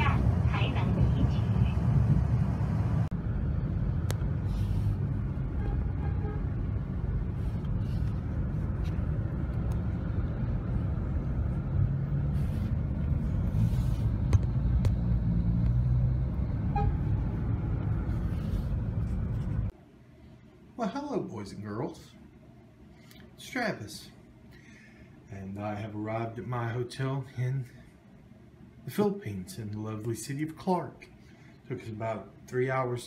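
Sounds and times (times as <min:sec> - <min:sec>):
vehicle rumble: 0:00.0 - 0:19.7.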